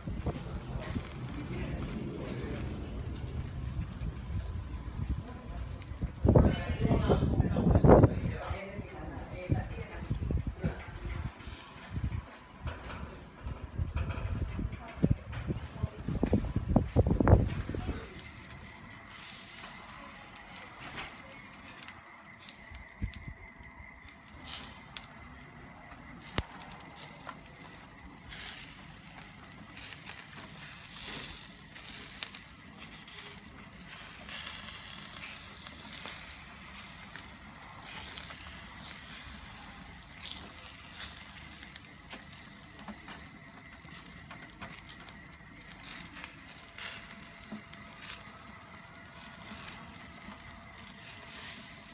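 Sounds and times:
fat crackling and popping on coals: 0:00.0 - 0:51.9
meat sizzling over charcoal: 0:00.0 - 0:51.9.

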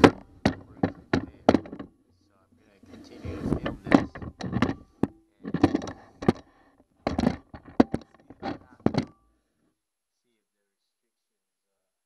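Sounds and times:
person talking: 0:00.0 - 0:06.5, 0:07.2 - 0:09.2.

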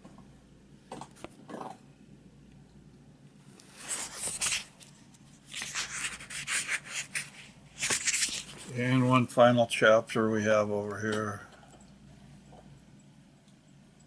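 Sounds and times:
book pages rustling: 0:03.6 - 0:08.8.

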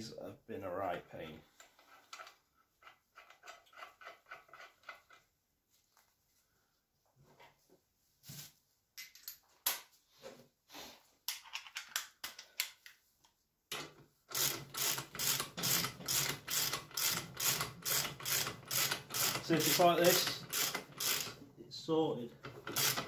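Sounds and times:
fast mechanical clicking: 0:14.3 - 0:21.4, 0:22.4 - 0:23.0.

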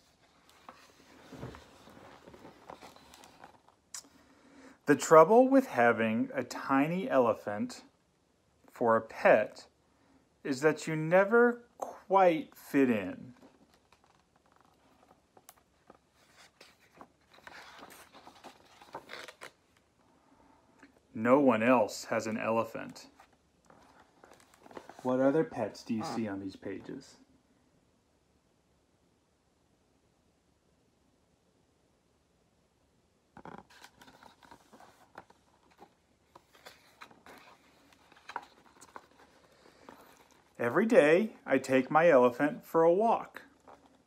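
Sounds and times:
book page turning: 0:00.0 - 0:04.1, 0:13.3 - 0:19.9, 0:22.8 - 0:27.0, 0:33.4 - 0:40.6, 0:43.4 - 0:44.0.

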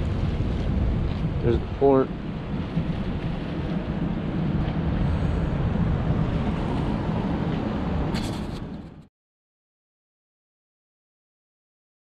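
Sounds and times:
wind on microphone: 0:00.0 - 0:09.1.

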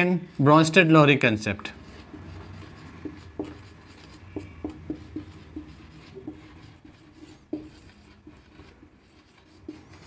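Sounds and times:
marker taps and scratches: 0:01.7 - 0:10.0
faint marker squeak: 0:04.0 - 0:05.2.

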